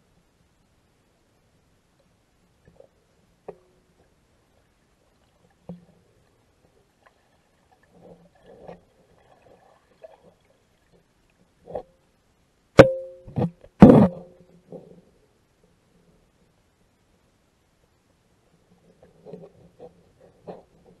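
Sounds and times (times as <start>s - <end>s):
faint underwater clicks and bumps: 1.9s - 12.2s, 12.8s - 15.2s, 18.1s - 21.0s.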